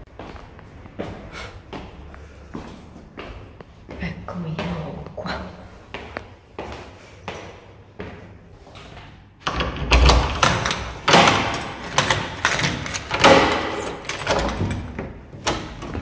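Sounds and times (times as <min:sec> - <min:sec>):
footsteps in a stairwell: 0:00.0 - 0:16.0
door being unlocked and opened: 0:09.4 - 0:16.0.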